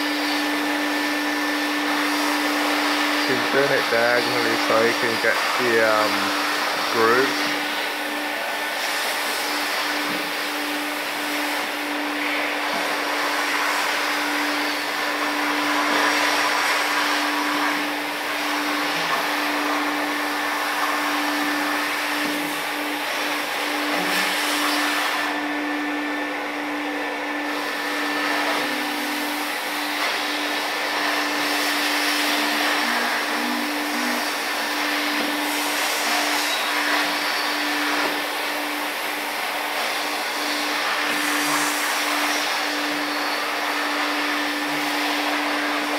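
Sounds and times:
vacuum machine motor hum: 0.0s - 45.9s.

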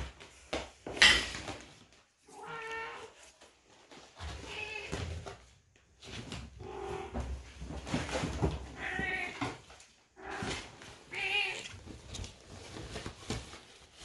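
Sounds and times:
kittens scrabbling in nylon tunnel: 1.4s - 14.0s
cat meowing: 2.3s - 3.2s, 11.1s - 11.7s.

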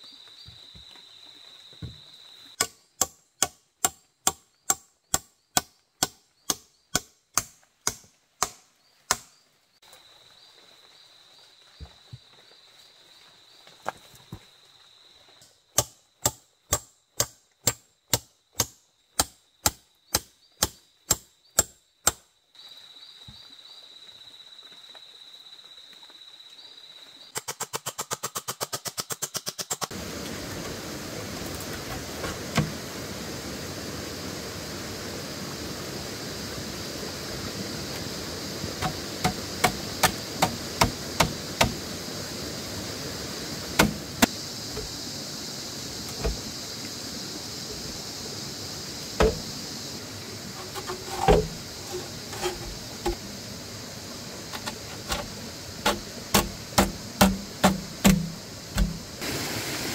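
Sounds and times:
sharp striking blows: 43.8s - 44.3s, 54.7s - 59.2s.

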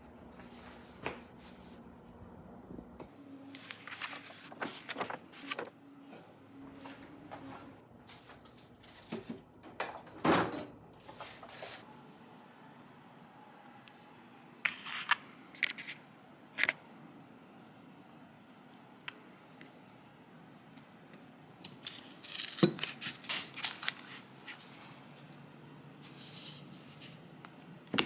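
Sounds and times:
foil paper wrapper crinkling: 3.6s - 5.7s, 21.9s - 24.2s.

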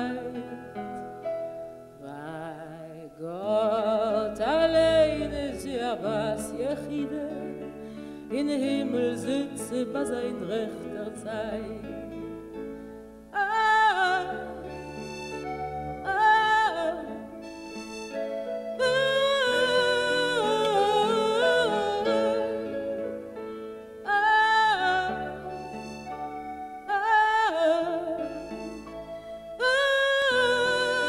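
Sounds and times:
band playing folk music: 14.6s - 23.8s.

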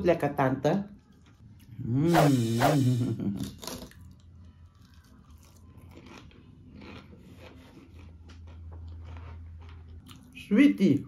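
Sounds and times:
person chewing crunchy food: 3.4s - 10.5s.

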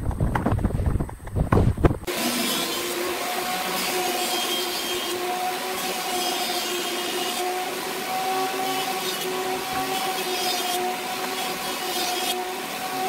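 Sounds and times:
electric jointer humming: 2.1s - 13.0s
hiss of wood cutting: 2.1s - 13.0s.

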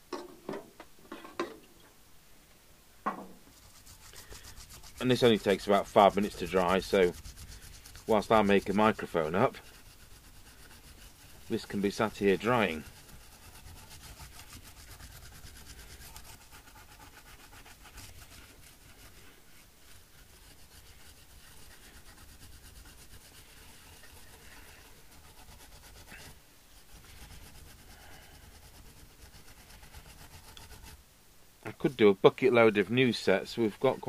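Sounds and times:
brush scrubbing circuit board: 3.4s - 31.0s, 31.7s - 34.0s.

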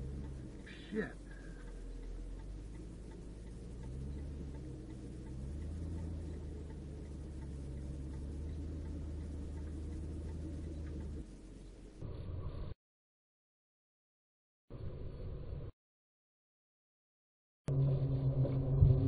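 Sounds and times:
faint even ticking: 0.0s - 11.7s
road and engine rumble in car: 0.0s - 12.1s.

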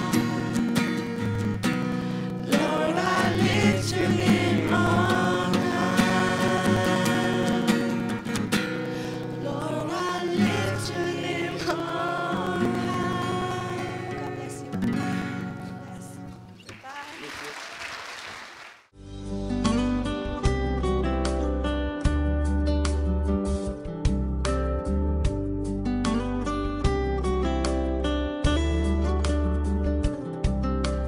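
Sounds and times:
young women singing: 0.0s - 1.2s, 2.4s - 8.3s, 9.3s - 16.4s.

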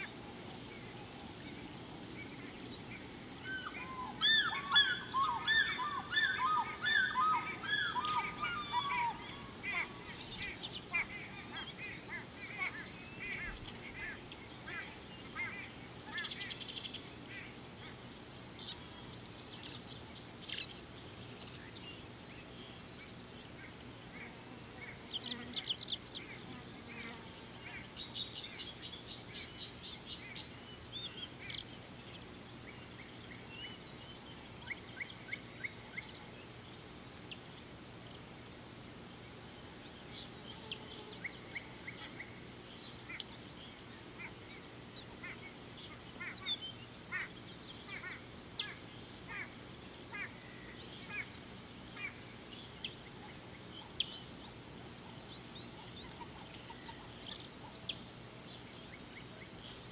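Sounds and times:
birds chattering: 0.0s - 37.7s, 39.6s - 59.9s
lower repeated bird calls: 0.0s - 38.2s, 39.1s - 59.9s.

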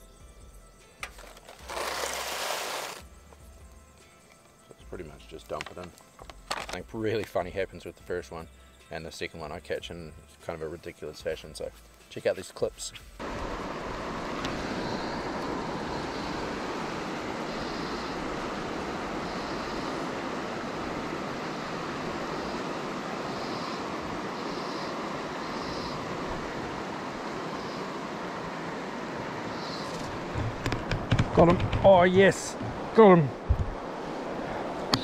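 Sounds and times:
river water over stones: 1.2s - 3.0s, 13.2s - 35.0s.

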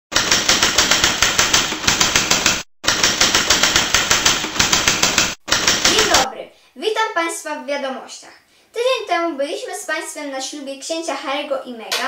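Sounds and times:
rapid even clicking: 0.1s - 6.3s.

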